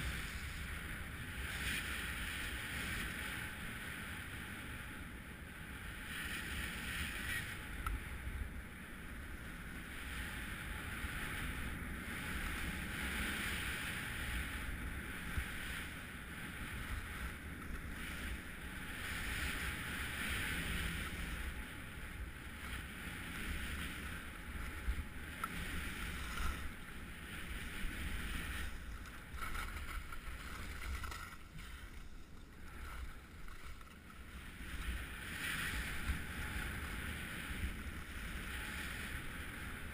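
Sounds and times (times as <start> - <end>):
skis scraping over snow: 0.0 - 4.9, 5.7 - 39.9
low wind rumble: 0.0 - 39.9.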